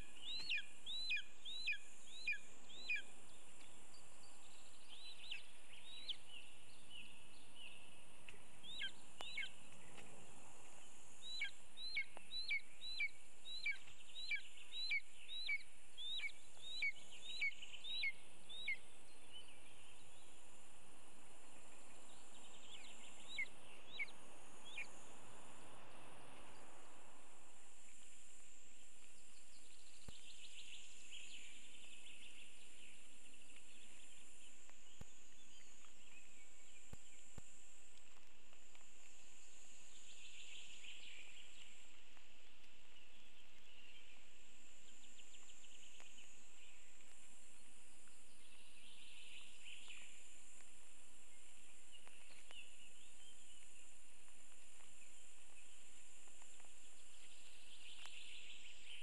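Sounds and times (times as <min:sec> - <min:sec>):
trilling bird song: 0:00.0 - 0:10.1, 0:11.2 - 0:20.4, 0:21.6 - 0:25.0
high-pitched hiss: 0:00.0 - 0:59.0.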